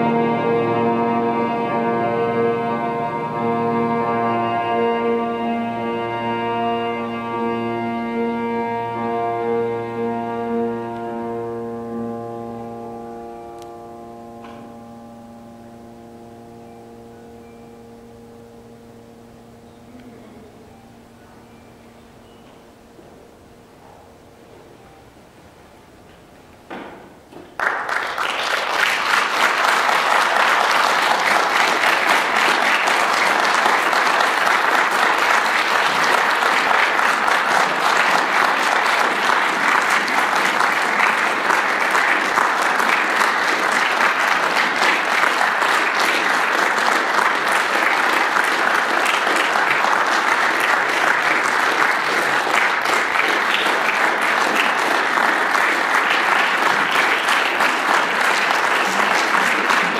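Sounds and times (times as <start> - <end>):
audience applauding: 27.3 - 59.9.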